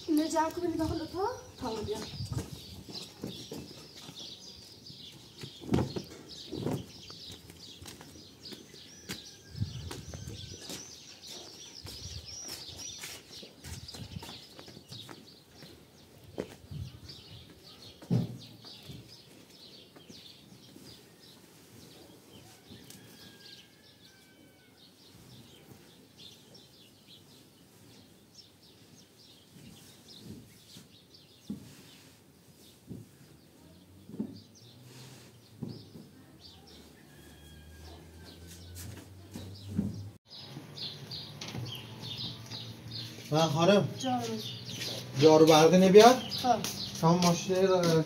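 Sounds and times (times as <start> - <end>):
small birds chirping: 0.0 - 48.0
dull thumps of handling bedding: 5.4 - 7.1.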